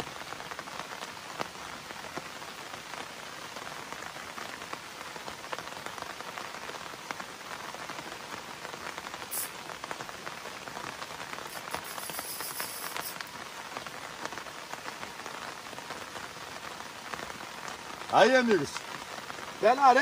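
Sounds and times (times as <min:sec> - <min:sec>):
steady rain falling: 0:00.0 - 0:20.0
short high hiss: 0:09.2 - 0:09.8, 0:11.4 - 0:13.4.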